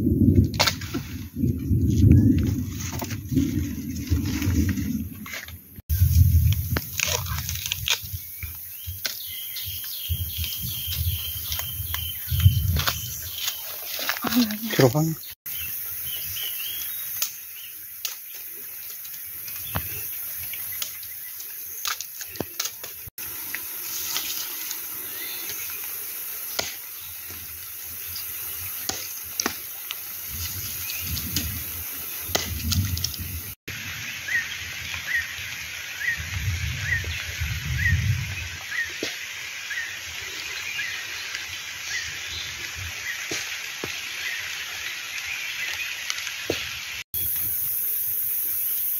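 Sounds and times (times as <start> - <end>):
machete chopping bamboo: 26.5 - 26.9, 28.8 - 29.7.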